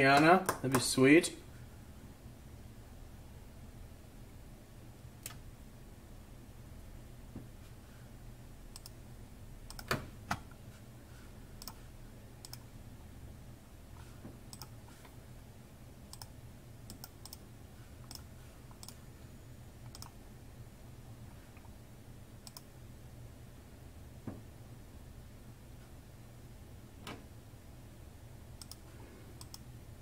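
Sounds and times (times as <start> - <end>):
faint low hum: 0.0 - 30.0
computer mouse clicks: 8.7 - 9.0, 9.7 - 10.4, 11.6 - 11.8, 12.4 - 12.6, 14.5 - 14.7, 16.1 - 16.3, 16.9 - 17.4, 18.0 - 19.0, 19.8 - 20.2, 22.4 - 22.7, 28.6 - 29.7.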